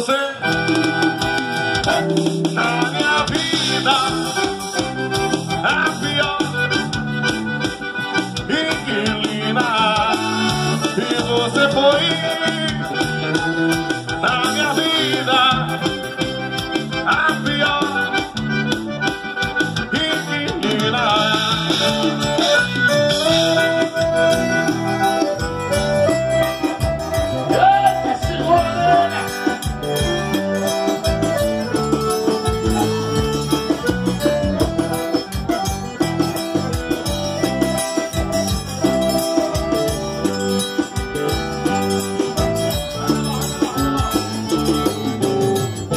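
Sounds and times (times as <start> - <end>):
man singing: 0.0 - 0.8, 1.7 - 7.0, 8.3 - 18.4, 19.8 - 22.4, 27.3 - 29.6
accordion: 0.0 - 45.9
drum kit: 0.0 - 45.9
guitar: 0.0 - 45.9
live band playing: 0.0 - 45.9.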